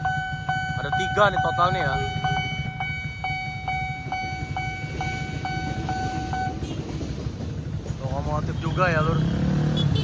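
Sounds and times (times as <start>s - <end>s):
level-crossing warning bell: 0.0s - 6.9s
diesel locomotive passing: 0.0s - 9.7s
motorcycles idling: 0.0s - 10.0s.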